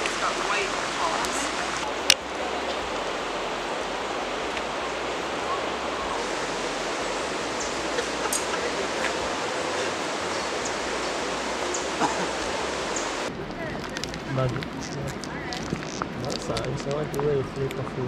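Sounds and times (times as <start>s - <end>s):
river water rushing: 0.0s - 13.4s.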